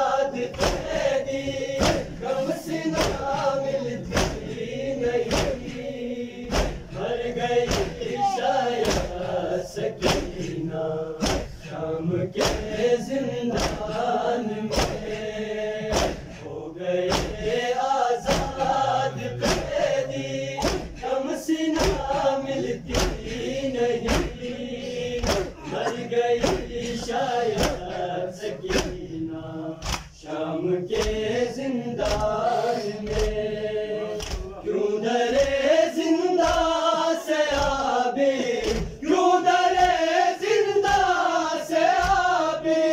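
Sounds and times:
crowd of men chanting: 0:00.0 - 0:42.9
rhythmic chest-beating slaps: 0:00.0 - 0:42.9.

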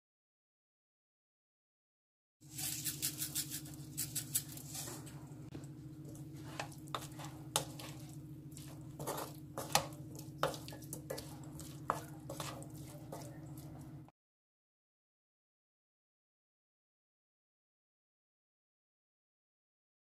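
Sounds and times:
wooden spatula scraping a wok: 0:02.4 - 0:05.2, 0:06.0 - 0:14.1
steady low hum: 0:02.5 - 0:14.1.

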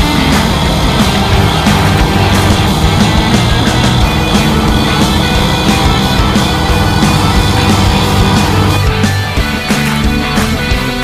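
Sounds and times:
loud rock music: 0:00.0 - 0:11.0.

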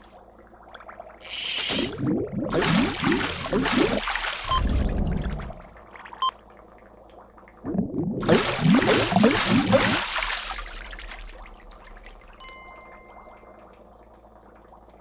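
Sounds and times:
cartoon bubbling blips: 0:01.2 - 0:06.3, 0:07.6 - 0:10.1.

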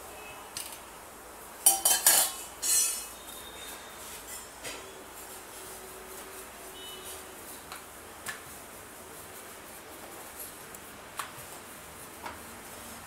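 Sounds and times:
spoon clinking on metal dish: 0:01.6 - 0:03.2.

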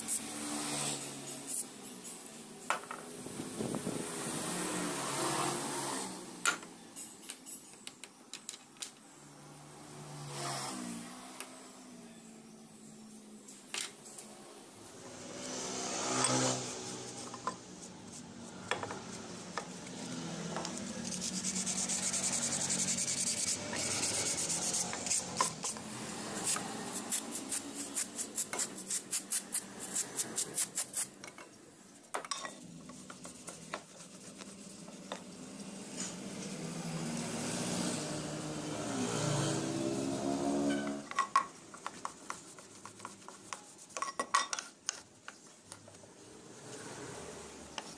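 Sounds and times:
cloth rubbing metal: 0:15.4 - 0:31.2
bristle brush scrubbing metal: 0:16.2 - 0:31.2, 0:32.6 - 0:36.6, 0:41.5 - 0:45.1.

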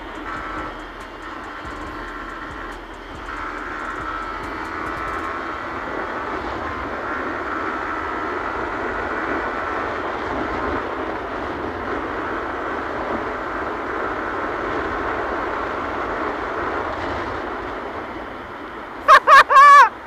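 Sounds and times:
motorcycle engine running: 0:00.0 - 0:09.3.

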